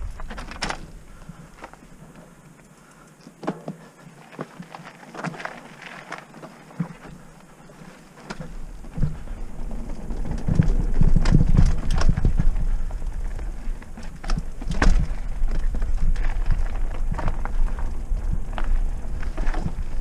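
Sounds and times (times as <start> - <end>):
wind rumble on microphone: 0.0 - 1.7, 8.3 - 20.0
mountain bike rattling and clattering: 0.0 - 20.0.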